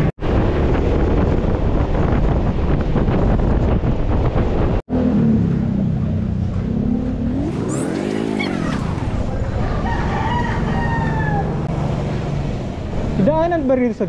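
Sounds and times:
vehicle engine revving: 4.9 - 13.6.

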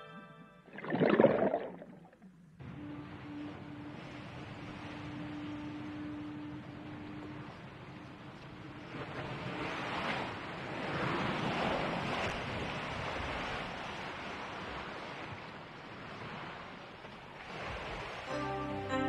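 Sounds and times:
sea water rushing: 0.7 - 15.2.

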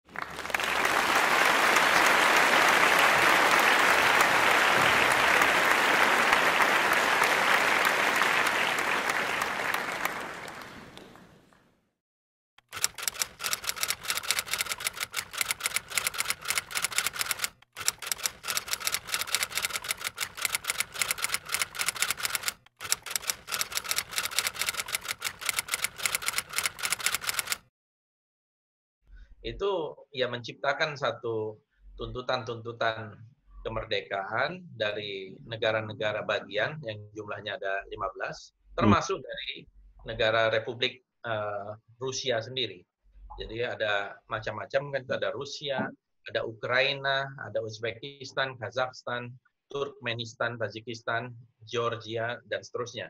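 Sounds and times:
applause: 0.0 - 11.4
typing clicks: 12.6 - 27.7.

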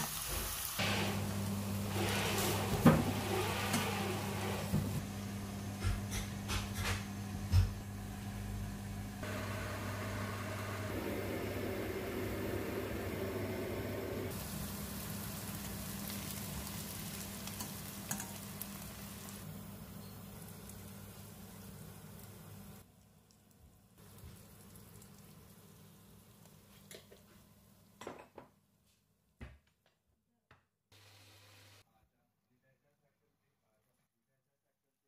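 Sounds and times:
food sizzling in a pan: 0.0 - 4.2, 14.3 - 27.9.

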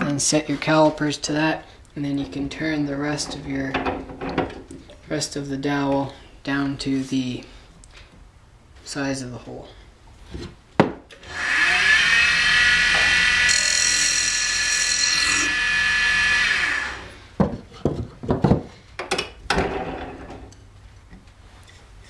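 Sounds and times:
lathe tool cutting wood: 11.2 - 17.1.

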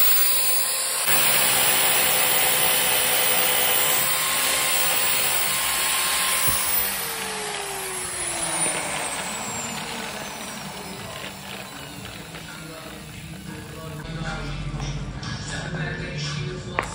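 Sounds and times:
angle grinder whining: 0.0 - 14.0
grinder knocking on floor: 1.1 - 14.0.

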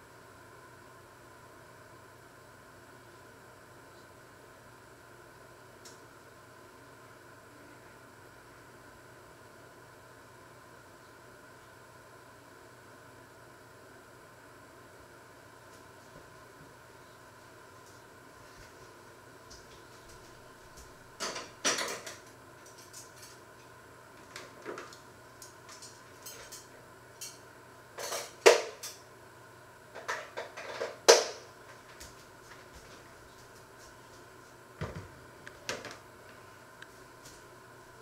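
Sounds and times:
utensils and dishes clinking: 25.7 - 27.4, 28.0 - 29.0.

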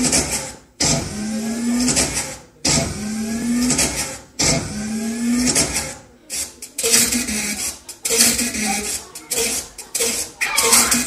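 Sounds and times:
machine-like sound effect: 10.1 - 11.0.

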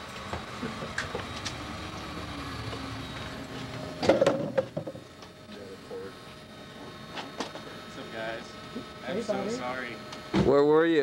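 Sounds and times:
loud knocks and clatter: 4.0 - 5.0.

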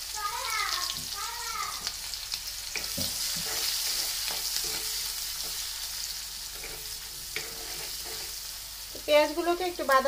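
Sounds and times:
onions sizzling in hot oil: 0.0 - 10.0
spatula scraping and tapping pan: 2.7 - 5.7, 6.5 - 8.5.

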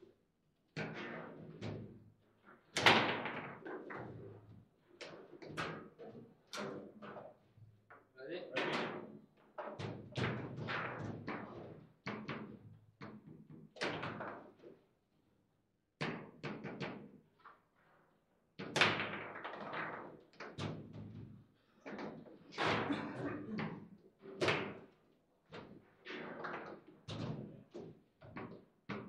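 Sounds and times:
foosball knocks and clacks: 2.7 - 4.4, 5.0 - 14.7, 16.0 - 17.1, 25.6 - 29.0.

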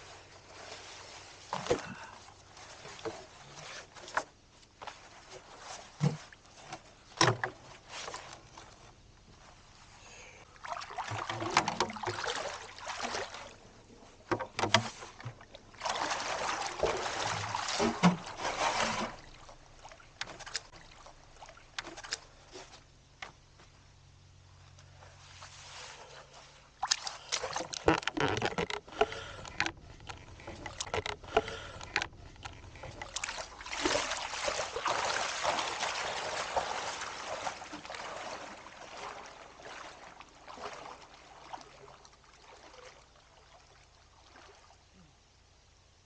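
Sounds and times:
water splashing and sloshing: 0.0 - 45.8.

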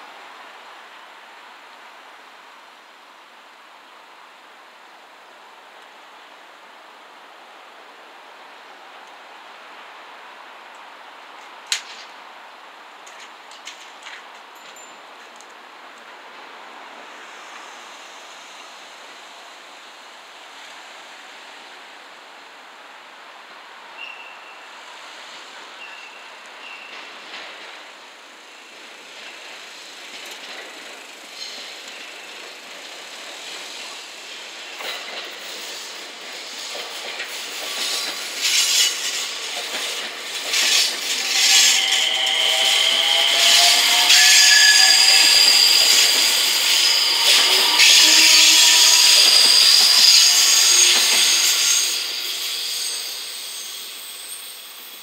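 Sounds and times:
train wheels squealing: 24.0 - 27.7, 28.4 - 55.0
train wheels clacking over joints: 30.0 - 54.4.

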